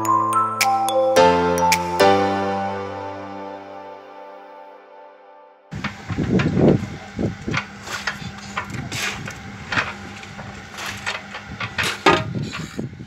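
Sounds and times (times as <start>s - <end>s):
machine humming: 5.7s - 13.0s
tools and timber knocking: 7.5s - 12.8s.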